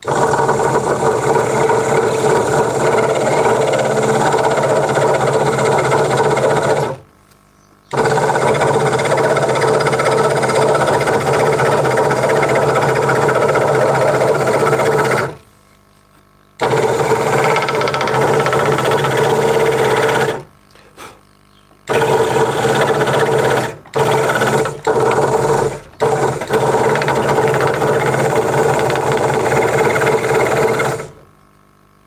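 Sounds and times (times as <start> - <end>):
scroll saw cutting wood: 0.0 - 7.0, 7.9 - 15.4, 16.6 - 20.5, 21.9 - 31.2.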